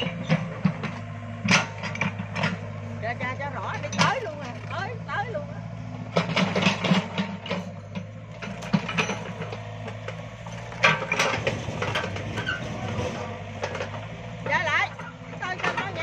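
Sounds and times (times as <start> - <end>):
metallic clanks and clicks: 0.0 - 2.8, 6.2 - 14.1
excavator diesel engine humming: 0.0 - 16.0.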